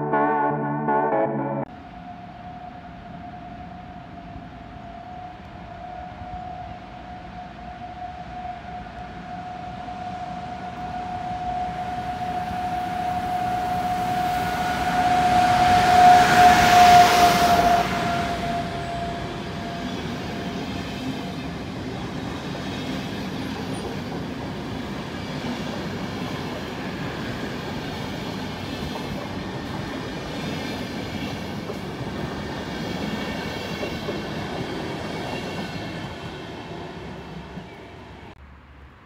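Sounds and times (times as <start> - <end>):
train wheels rumbling on rails: 10.0 - 38.4.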